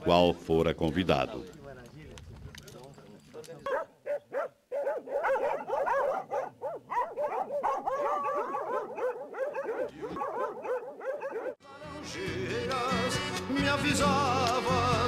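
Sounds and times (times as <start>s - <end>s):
dogs barking: 3.6s - 11.6s.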